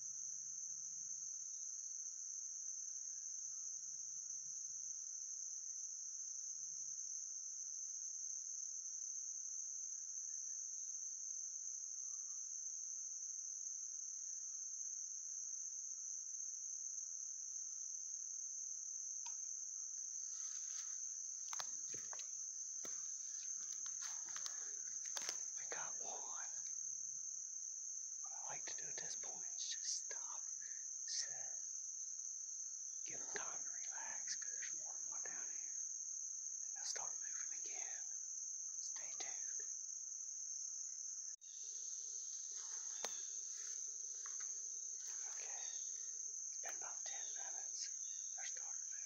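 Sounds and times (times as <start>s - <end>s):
insect chorus droning: 0.0s - 49.0s
footsteps in dry leaves: 23.0s - 25.5s.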